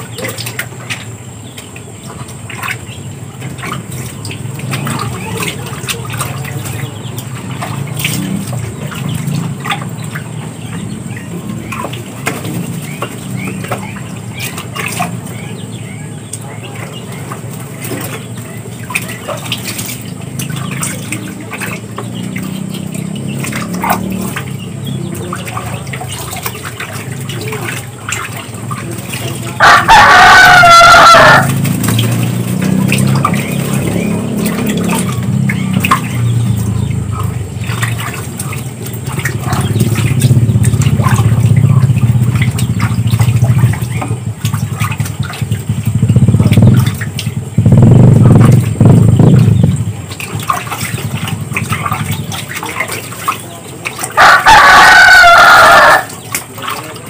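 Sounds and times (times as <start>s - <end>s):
ducks splashing in water: 0.0s - 57.0s
rooster crowing: 29.6s - 31.7s, 54.2s - 56.1s.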